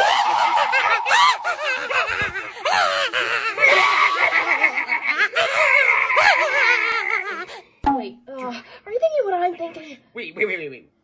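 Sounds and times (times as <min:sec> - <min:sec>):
people shrieking and laughing: 0:00.0 - 0:07.5.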